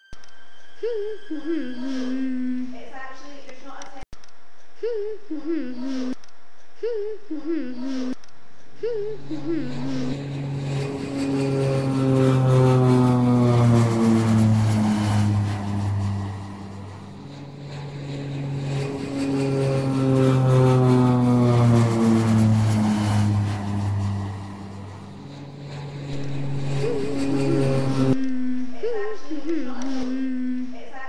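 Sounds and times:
engine passing by: 0:09.2 - 0:28.8.

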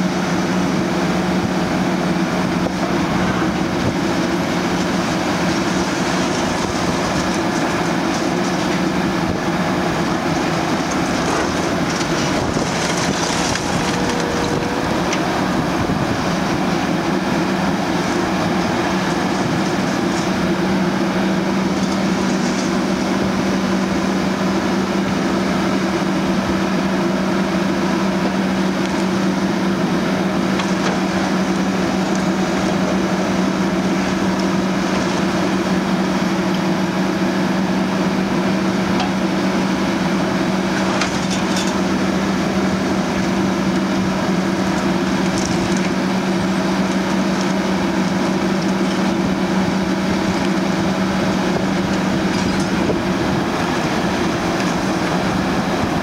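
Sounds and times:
excavator diesel engine: 0:00.0 - 0:56.0
concrete cracking: 0:04.6 - 0:09.2, 0:09.8 - 0:15.6, 0:44.6 - 0:49.2.

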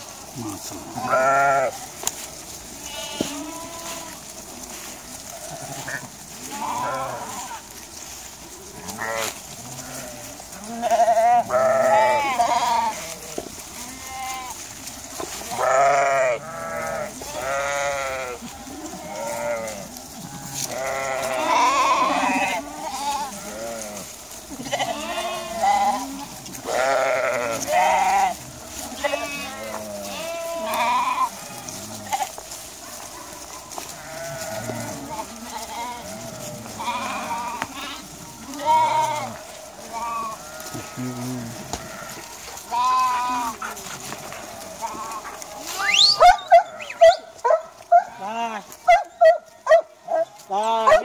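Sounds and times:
sheep and lambs bleating: 0:00.0 - 0:51.0.

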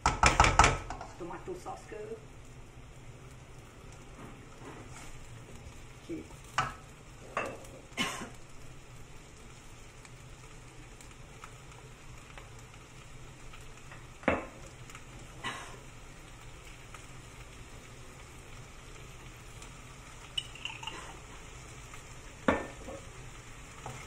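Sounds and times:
spatula knocking and scraping pan: 0:00.0 - 0:01.2, 0:22.4 - 0:23.1
food sizzling in a wok: 0:00.0 - 0:24.0.

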